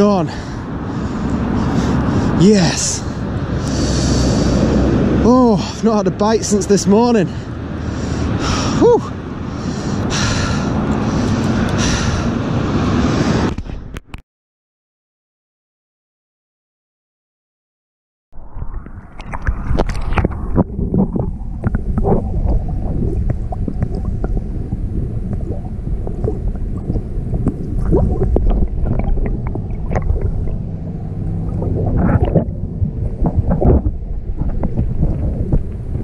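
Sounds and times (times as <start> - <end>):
muffled underwater sloshing: 18.4 - 36.0.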